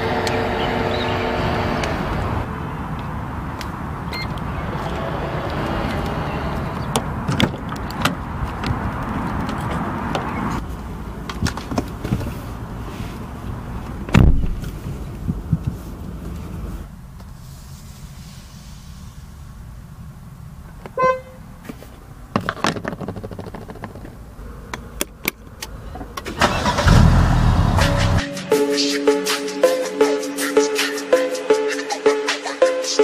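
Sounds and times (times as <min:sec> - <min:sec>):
car door thump: 0:14.1 - 0:14.6.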